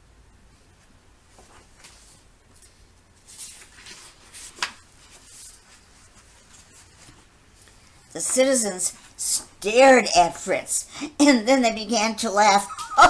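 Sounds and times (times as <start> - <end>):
book pages rustling: 0.8 - 7.9
page slapping: 3.3 - 5.6.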